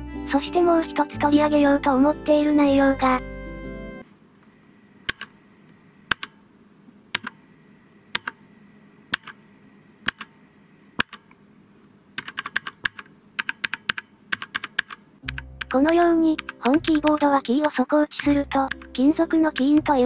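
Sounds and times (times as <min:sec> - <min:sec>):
mechanical keyboard keystrokes: 0:05.1 - 0:05.3, 0:06.1 - 0:06.4, 0:07.1 - 0:07.4, 0:08.1 - 0:08.4, 0:09.1 - 0:09.4, 0:10.0 - 0:10.3, 0:11.0 - 0:11.3, 0:12.2 - 0:19.9.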